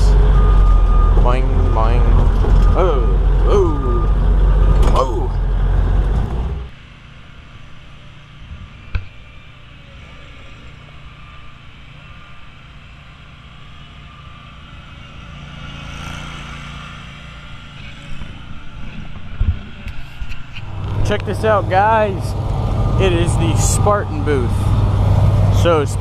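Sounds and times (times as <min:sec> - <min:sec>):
riding mower engine running: 0:00.0 - 0:26.0.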